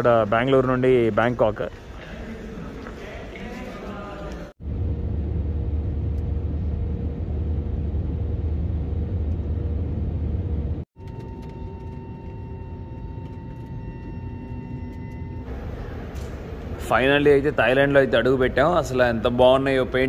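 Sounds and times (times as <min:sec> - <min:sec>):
jet cabin rumble: 0:04.6 - 0:17.9
high whining tones: 0:04.6 - 0:18.6.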